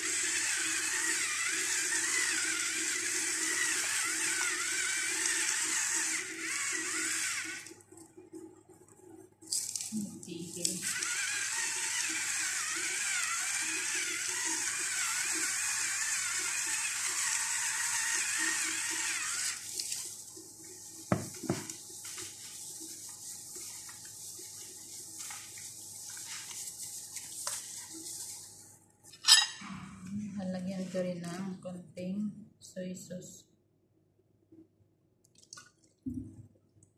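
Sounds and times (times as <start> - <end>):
electric spice grinder running: 0.0 - 7.8, 10.6 - 19.8.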